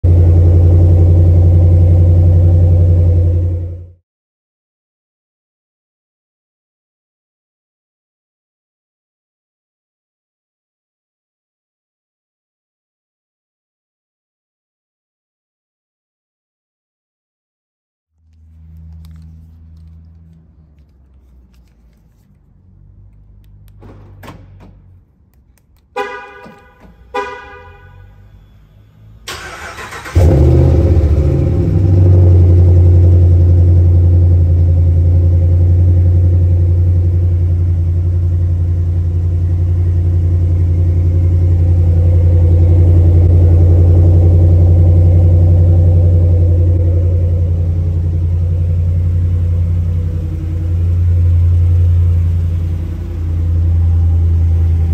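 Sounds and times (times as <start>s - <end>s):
car engine cranking and idling: 0.0s - 3.9s, 18.2s - 54.9s
car horn chirps: 25.9s - 30.2s.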